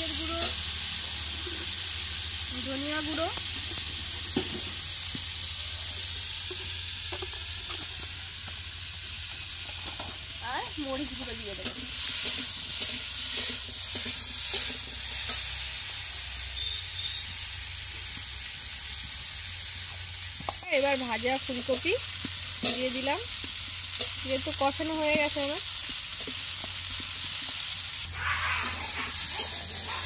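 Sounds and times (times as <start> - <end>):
masala sizzling in oil: 0.0 - 30.0
spatula scraping pan: 28.1 - 30.0.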